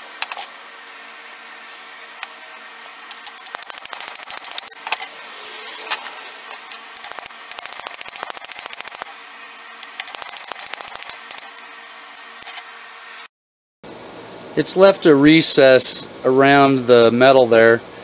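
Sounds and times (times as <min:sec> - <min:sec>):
small hammer tapping on metal pins: 0:00.2 - 0:00.5, 0:03.1 - 0:05.1, 0:06.5 - 0:09.1, 0:09.8 - 0:11.6.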